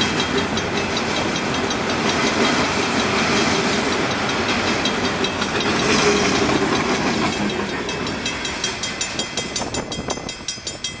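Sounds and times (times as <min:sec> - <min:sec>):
freight train wheels rolling: 0:00.0 - 0:11.0
level crossing warning bell: 0:00.0 - 0:11.0.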